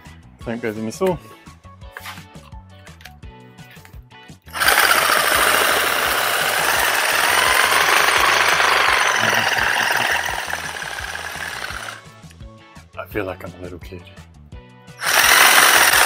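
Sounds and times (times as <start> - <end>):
reciprocating saw running: 4.5 - 12.0, 15.0 - 16.0.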